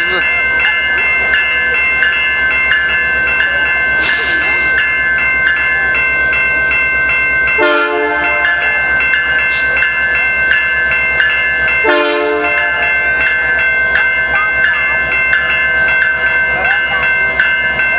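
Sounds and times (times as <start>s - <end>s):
diesel locomotive engine throb: 0.0s - 17.9s
level-crossing warning bell: 0.0s - 17.9s
locomotive horn blasts: 7.6s - 8.4s, 11.8s - 12.8s.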